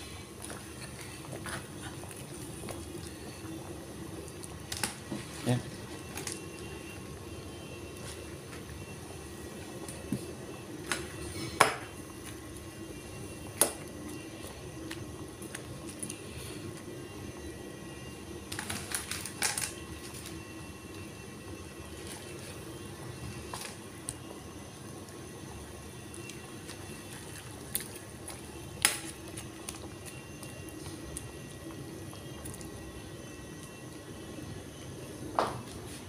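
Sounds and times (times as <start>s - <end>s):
soup bubbling in a pot: 0.0s - 35.9s.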